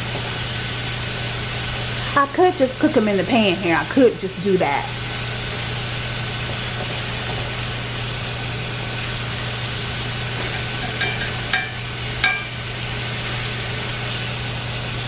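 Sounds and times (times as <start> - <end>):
steaks sizzling in butter: 0.0 - 15.0
metal fork clinking on pan: 10.5 - 12.6.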